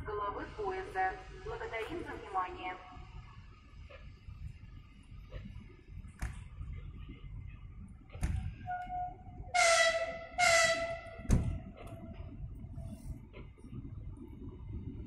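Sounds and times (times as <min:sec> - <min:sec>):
train horn blasts: 0:08.7 - 0:11.7
dull thump: 0:11.2 - 0:11.7.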